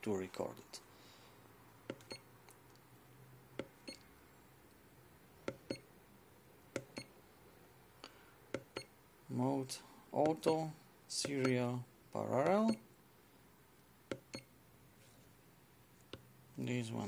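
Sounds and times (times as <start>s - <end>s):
meter button clicks: 1.9s - 2.2s, 5.5s - 5.8s, 10.2s - 10.6s, 11.2s - 11.6s, 12.4s - 12.8s.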